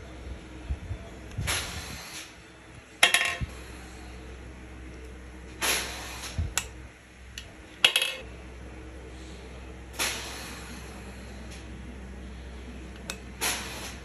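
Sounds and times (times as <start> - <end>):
metal parts tapping and clinking: 3.0 - 3.5, 7.4 - 8.2.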